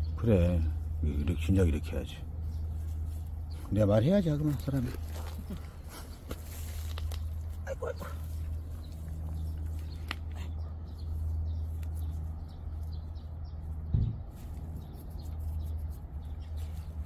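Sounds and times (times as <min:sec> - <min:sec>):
dull thump: 0:13.9 - 0:14.4.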